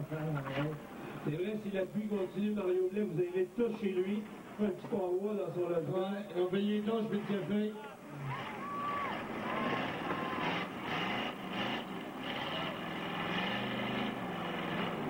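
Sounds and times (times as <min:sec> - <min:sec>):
car engines revving hard: 0:08.2 - 0:15.0.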